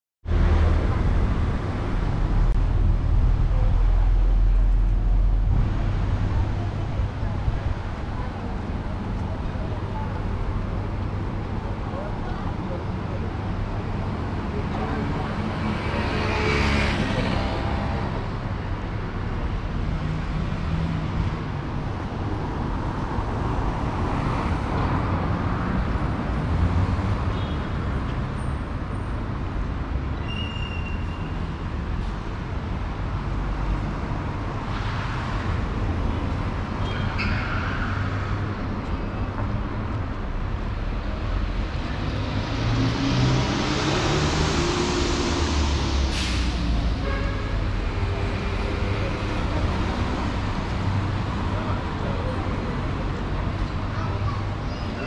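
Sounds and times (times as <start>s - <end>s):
traffic rumble: 0.2s - 55.0s
vehicles passing: 0.2s - 55.0s
engine revving pulling away: 41.9s - 47.0s.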